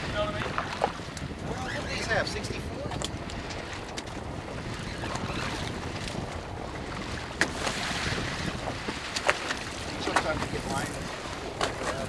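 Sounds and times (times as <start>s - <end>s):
water noise: 0.0s - 12.0s
wind buffeting microphone: 0.0s - 12.0s.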